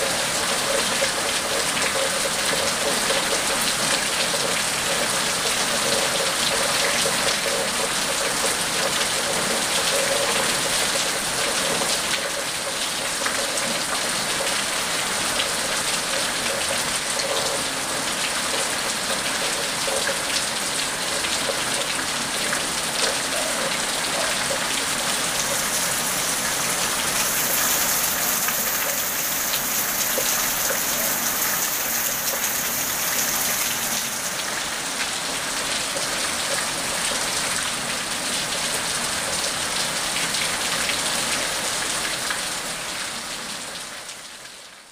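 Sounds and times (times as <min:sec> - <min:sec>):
rain on pavement: 0:00.0 - 0:44.9.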